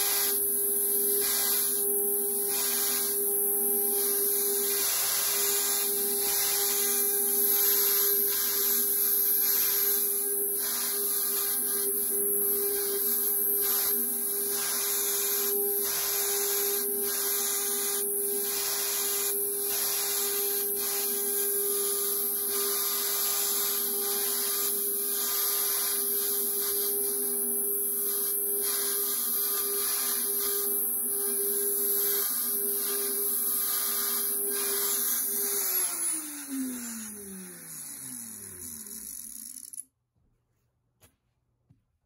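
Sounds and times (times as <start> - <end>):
router cutting hiss: 0.0 - 39.8
router whining: 0.0 - 39.9.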